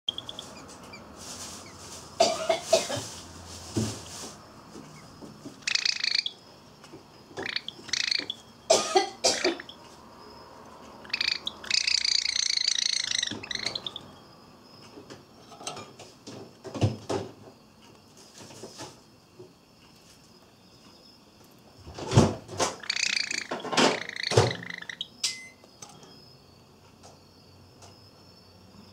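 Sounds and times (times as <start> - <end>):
bird harsh agitated calls: 0.1 - 1.8, 5.6 - 6.4, 7.4 - 9.8, 11.0 - 14.2, 22.8 - 25.2.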